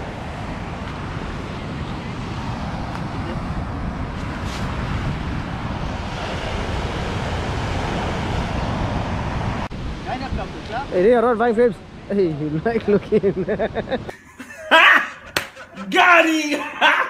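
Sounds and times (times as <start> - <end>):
wind on microphone: 0.0 - 11.0
surf on beach: 0.0 - 16.8.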